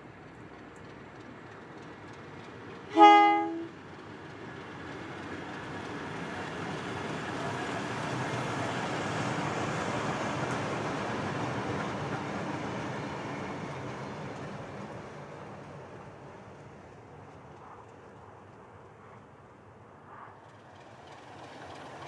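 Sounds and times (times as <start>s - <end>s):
locomotive horn blast: 2.9s - 3.8s.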